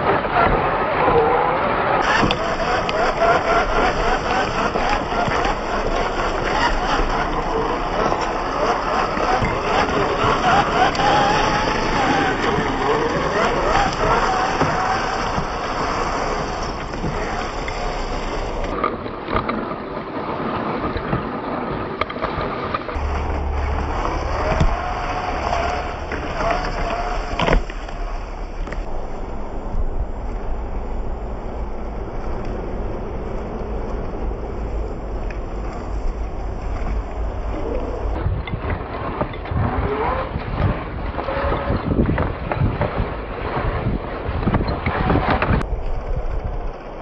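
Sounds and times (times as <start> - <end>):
wind on microphone: 0.0 - 19.2, 23.0 - 47.0
electric motor whining: 2.0 - 18.8, 23.0 - 38.2
knocks and crunches of tyres: 2.0 - 19.6, 22.9 - 38.2
toy truck drivetrain rumble: 2.0 - 19.6, 22.9 - 38.2, 44.3 - 47.0.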